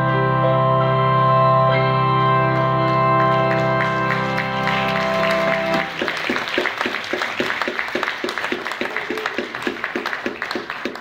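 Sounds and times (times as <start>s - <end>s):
held music chord: 0.0s - 6.4s
congregation applauding: 2.4s - 11.0s
person clapping nearby: 2.6s - 11.0s.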